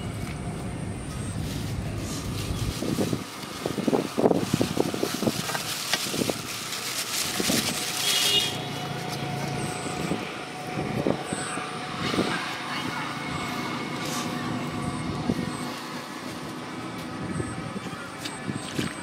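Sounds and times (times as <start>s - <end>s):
passing vehicle hum: 0.0s - 19.0s
plastic bag rustling: 0.4s - 10.2s, 13.9s - 17.2s.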